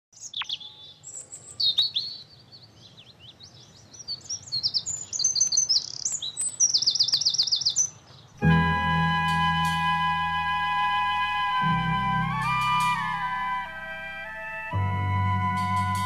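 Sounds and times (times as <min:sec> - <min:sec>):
bird singing: 0:00.1 - 0:16.0
sustained music: 0:08.4 - 0:16.0.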